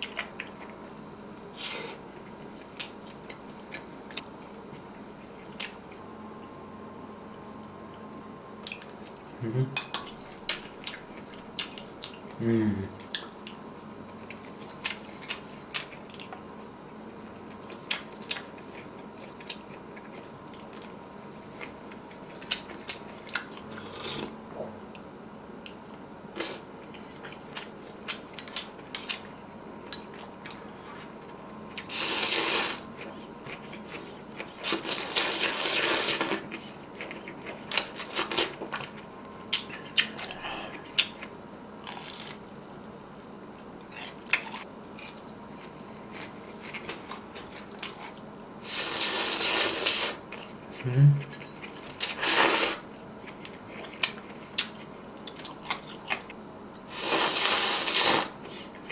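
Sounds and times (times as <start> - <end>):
mouth sounds: 50.8 - 51.3
loud slurping: 56.9 - 58.3.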